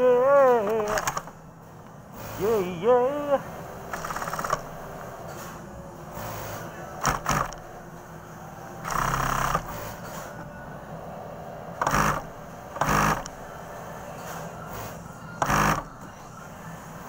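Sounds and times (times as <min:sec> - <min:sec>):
sewing machine stitching: 0:03.9 - 0:04.7, 0:07.0 - 0:07.6, 0:08.8 - 0:10.0, 0:11.8 - 0:13.3, 0:15.4 - 0:15.9.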